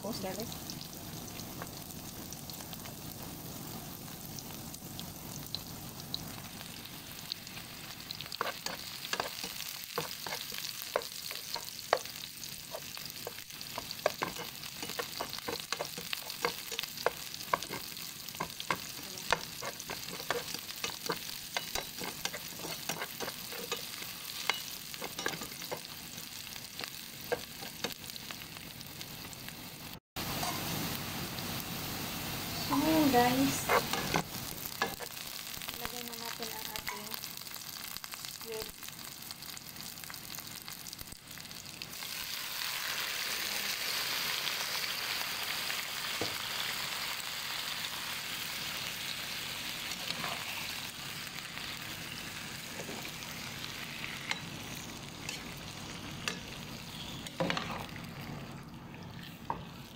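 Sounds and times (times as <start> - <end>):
onions sizzling in hot oil: 0.0 - 59.9
metal spatula scraping pan: 14.1 - 25.9.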